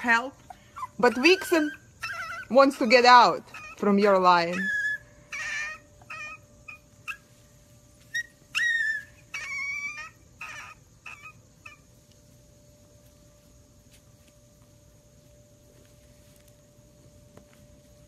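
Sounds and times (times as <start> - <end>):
puppies whimpering and squeaking: 0.1 - 12.0.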